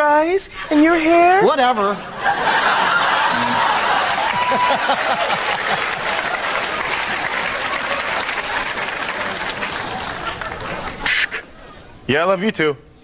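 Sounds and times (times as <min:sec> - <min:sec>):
audience laughing: 0:01.9 - 0:11.8
audience applauding: 0:02.7 - 0:11.2
people whooping: 0:03.2 - 0:11.2.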